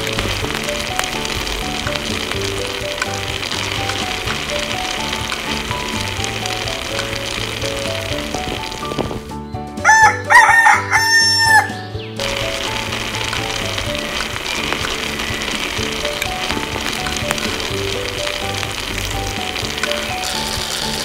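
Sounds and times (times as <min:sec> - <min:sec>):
curry sizzling in a pan: 0:00.0 - 0:21.0
light background music: 0:00.0 - 0:21.0
rooster crowing: 0:09.8 - 0:11.8.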